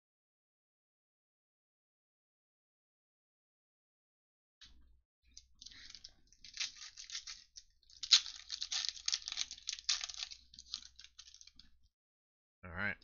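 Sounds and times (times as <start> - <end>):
foil wrapper crinkling and tearing: 5.6 - 11.6.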